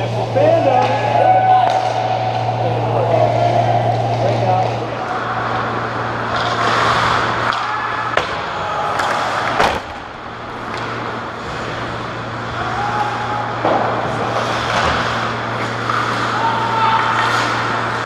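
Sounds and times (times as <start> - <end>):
steady low hum: 0.0 - 18.0
hockey sticks and puck clacking: 0.4 - 4.8, 5.4 - 10.0, 10.6 - 12.0, 12.6 - 18.0
skate blades scraping ice: 6.3 - 7.7.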